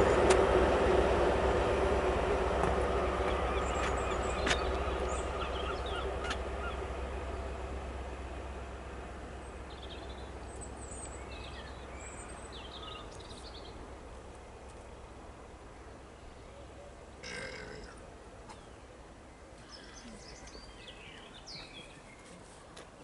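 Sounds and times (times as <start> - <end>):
train diesel engine rumble: 0.0 - 23.0
small birds chirping: 3.2 - 6.8, 9.5 - 13.8, 18.5 - 22.9.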